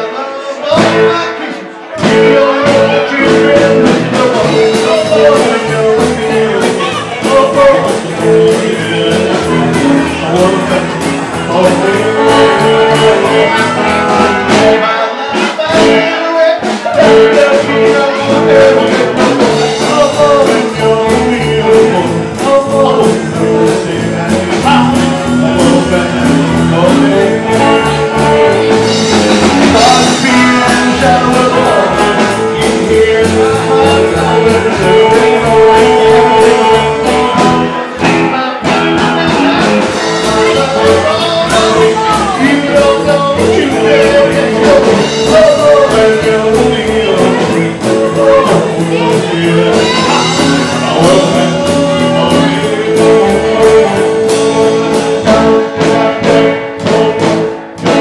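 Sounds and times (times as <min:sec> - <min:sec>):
live rock and roll band: 0:00.0 - 0:58.0
lead line held notes: 0:17.1 - 0:58.0.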